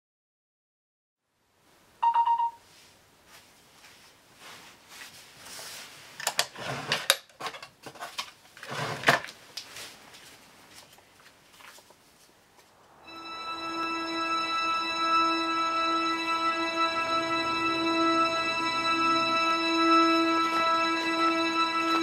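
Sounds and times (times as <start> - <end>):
short electronic beep: 2.0 - 2.6
rustling of bedding: 2.6 - 7.0, 8.0 - 12.8.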